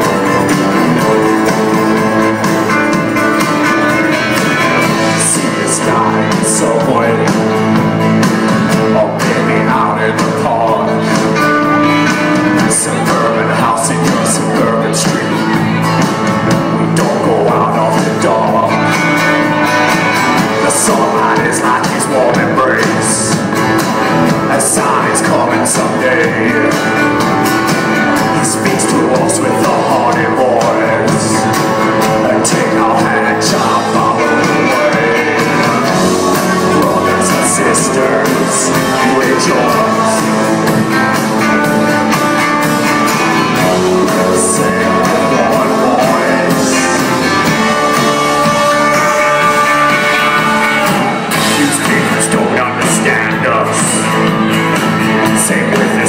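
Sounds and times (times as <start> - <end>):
acoustic guitar: 0.0 - 56.0
live band playing: 0.0 - 56.0
person singing: 0.0 - 56.0.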